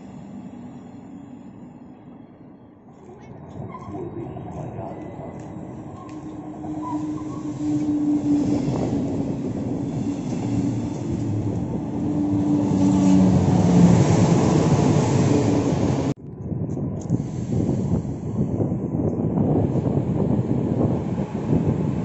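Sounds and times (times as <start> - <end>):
train wheels rumbling on rails: 2.9 - 22.0
wind on microphone: 3.5 - 22.0.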